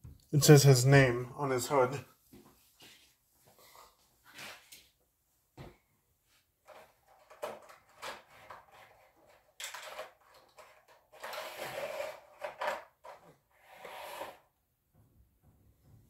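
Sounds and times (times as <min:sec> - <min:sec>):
toy cars clicking in plastic tray: 0:06.7 - 0:13.3
rustling plastic scrapes: 0:10.5 - 0:12.7.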